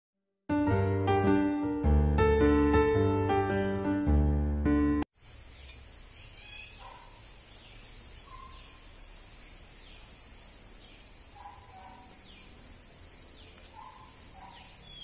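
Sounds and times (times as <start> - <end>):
insects droning: 5.1 - 15.0
bird chirps: 5.5 - 12.6, 13.2 - 15.0.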